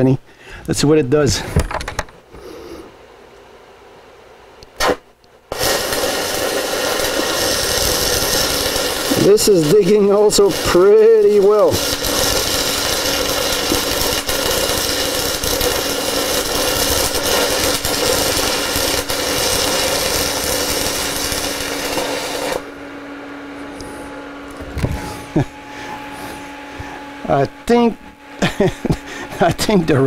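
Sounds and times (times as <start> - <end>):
welding arc crackling and hissing: 4.6 - 22.8
low steady hum: 20.0 - 30.0.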